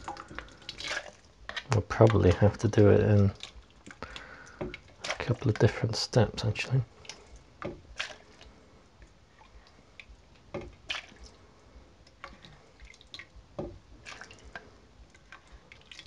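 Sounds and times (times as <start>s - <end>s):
thick liquid plopping and dripping: 0.0s - 5.8s, 6.9s - 11.4s, 12.0s - 16.0s.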